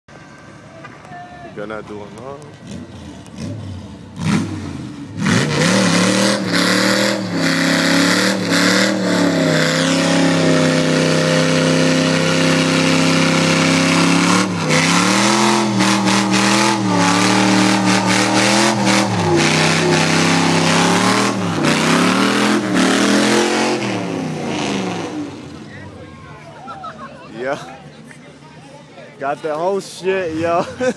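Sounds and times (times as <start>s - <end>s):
tyres spinning on asphalt: 1.8s - 28.4s
engine revving hard: 2.6s - 25.6s.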